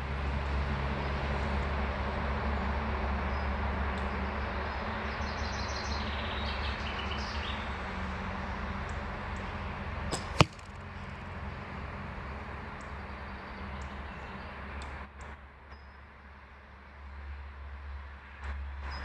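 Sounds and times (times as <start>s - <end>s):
arrow thudding into target: 10.1s - 10.9s.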